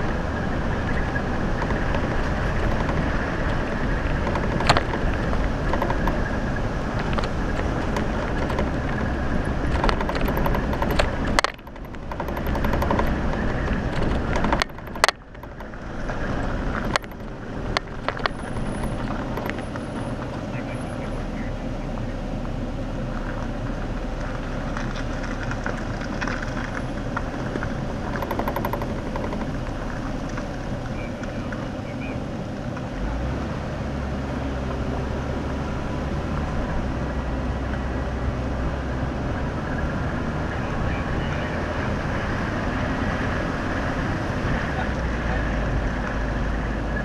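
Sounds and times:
rattles and clicks: 0.0 - 20.5, 24.2 - 31.6
car engine and tyre noise: 0.0 - 47.0.

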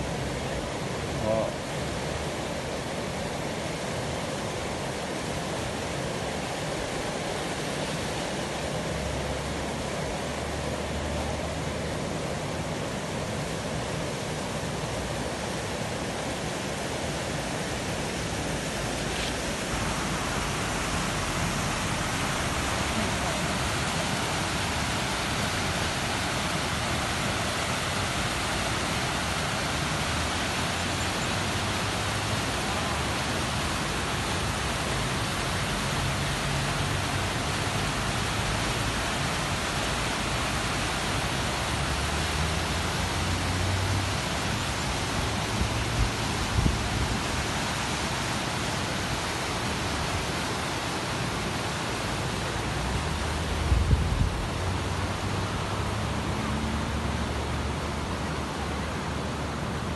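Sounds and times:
stream rushing over rocks: 0.0 - 59.9.

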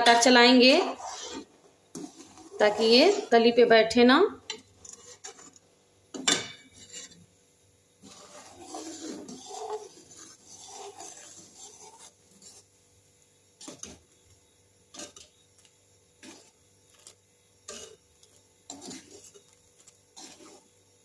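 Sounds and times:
ladle scraping metal pot: 0.0 - 3.5, 4.5 - 5.6, 6.2 - 7.3, 8.0 - 12.7, 13.6 - 14.0, 14.9 - 15.3, 16.2 - 20.7.

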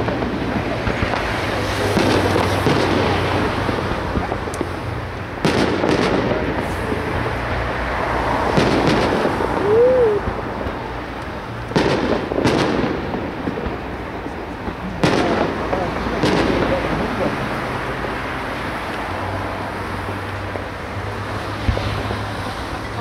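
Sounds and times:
fireworks din: 0.0 - 23.0
firework shells bursting: 8.4 - 22.2.

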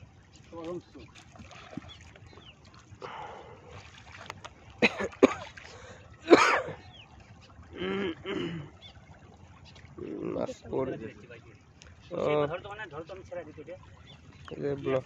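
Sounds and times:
water splashing: 0.0 - 15.0
person coughing: 4.8 - 5.5, 6.3 - 6.8, 7.8 - 8.7.

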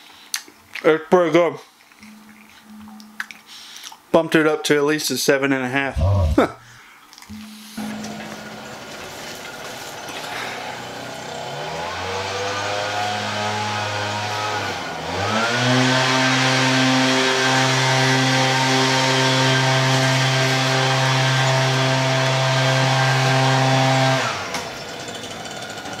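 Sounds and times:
engine revving: 6.0 - 6.6, 11.4 - 24.4.

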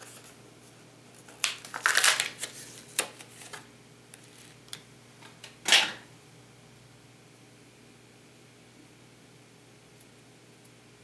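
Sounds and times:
packaging crinkling: 1.2 - 4.8
packaging clicks: 1.3 - 3.6.

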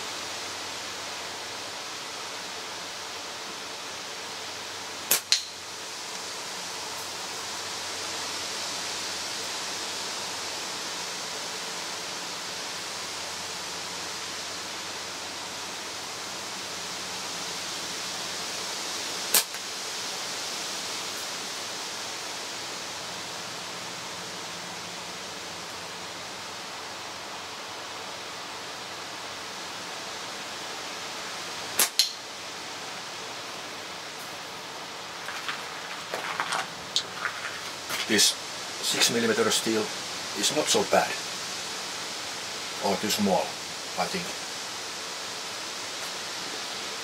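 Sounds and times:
steady outdoor hiss: 0.0 - 47.0
slingshot band snap: 5.1 - 5.6, 19.3 - 19.6, 31.8 - 32.2
ball striking target crack: 31.8 - 32.2.

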